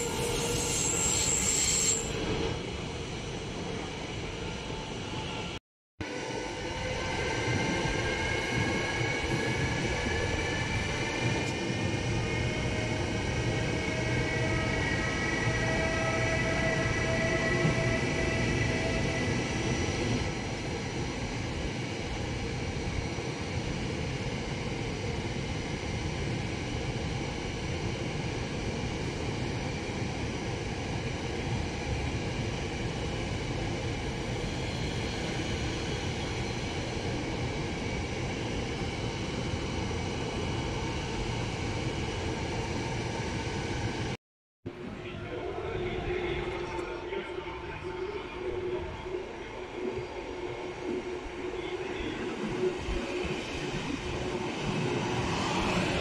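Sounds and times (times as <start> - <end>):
faint squeal: 0.0 - 5.5
train wheels rumbling on rail: 0.0 - 44.1.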